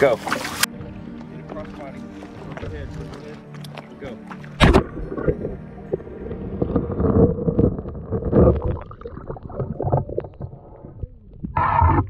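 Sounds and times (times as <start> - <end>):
shallow water sloshing and splashing: 0.0 - 0.7, 4.3 - 11.0.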